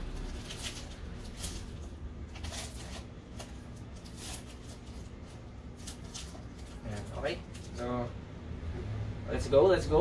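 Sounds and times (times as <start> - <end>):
foil pack crinkling: 0.0 - 7.9.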